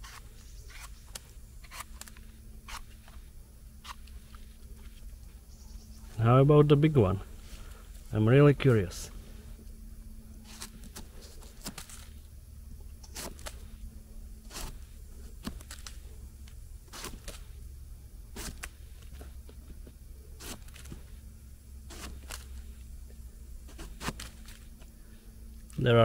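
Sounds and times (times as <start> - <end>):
knife scraping mushroom stem: 0.0 - 3.2, 3.8 - 5.0, 10.4 - 12.2, 13.0 - 13.8, 14.4 - 16.1, 16.9 - 17.6, 18.3 - 19.2, 20.3 - 21.2, 21.8 - 22.8, 23.6 - 24.8.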